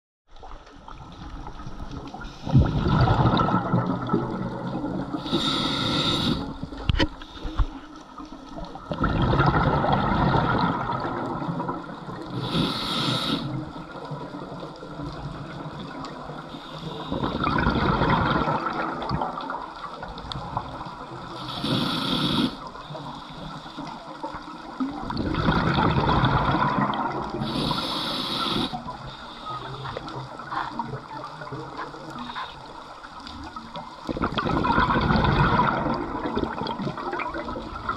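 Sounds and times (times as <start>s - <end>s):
bubbling exhale rush: 2.4s - 6.8s, 8.9s - 13.6s, 21.4s - 22.6s, 25.1s - 28.8s, 34.1s - 37.9s
regulator hissing inhales: 5.2s - 6.6s, 12.3s - 13.6s, 21.4s - 23.8s, 27.4s - 30.0s.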